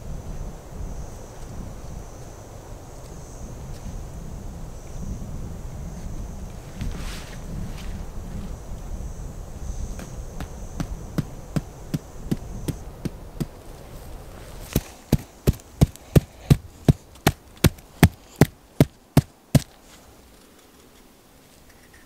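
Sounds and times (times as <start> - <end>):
stake being hammered into ground: 9.9 - 13.6, 14.7 - 19.8.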